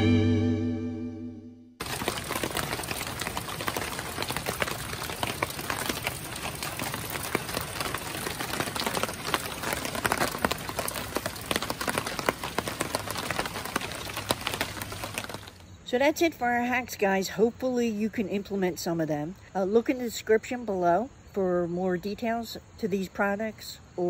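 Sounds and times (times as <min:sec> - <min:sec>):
raindrops hitting close by: 0:01.8 - 0:15.8
steady rain: 0:01.8 - 0:15.8.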